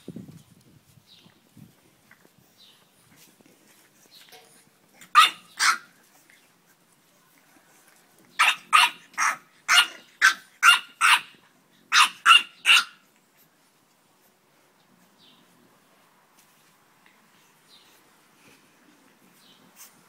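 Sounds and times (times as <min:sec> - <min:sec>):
dog barking: 0:05.1 - 0:05.8, 0:08.4 - 0:11.3, 0:11.9 - 0:13.0.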